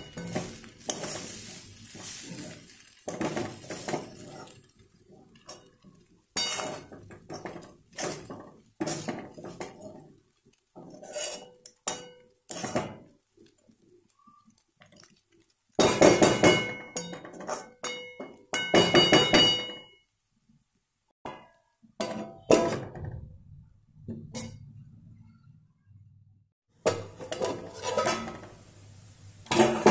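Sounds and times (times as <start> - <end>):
spatula scraping metal pan: 0.0 - 13.1, 15.9 - 18.0, 27.1 - 28.5.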